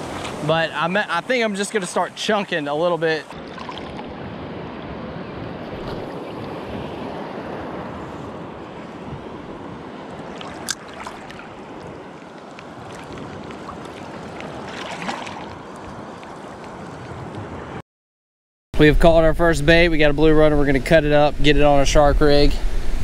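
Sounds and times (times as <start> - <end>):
surf washing and sloshing: 0.0 - 17.8
wind on microphone: 3.3 - 16.1.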